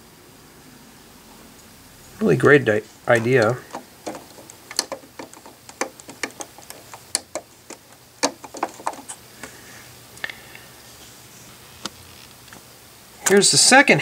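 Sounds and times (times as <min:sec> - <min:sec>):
plastic toy bricks clicking: 0:03.2 - 0:09.2.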